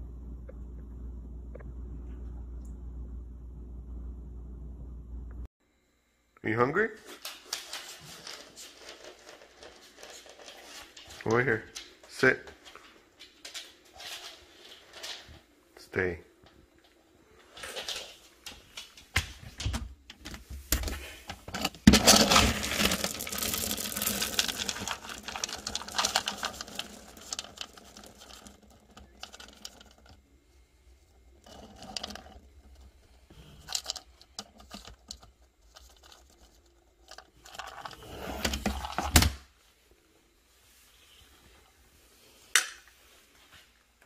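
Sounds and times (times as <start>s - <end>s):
handling bumps and clatter: 19.1s - 30.2s
dry kibble rattling in plastic bin: 21.5s - 30.2s, 31.4s - 33.0s, 33.6s - 39.1s.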